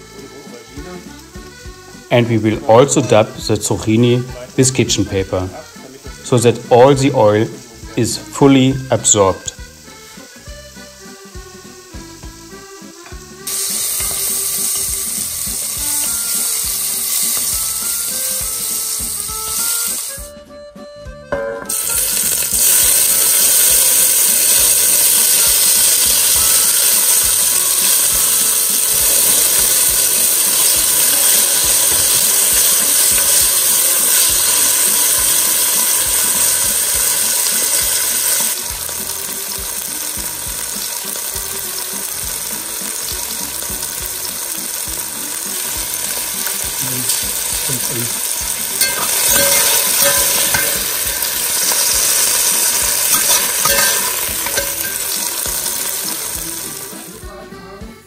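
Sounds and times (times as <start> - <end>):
peppers sizzling in oil: 0.0 - 20.4, 21.3 - 57.4.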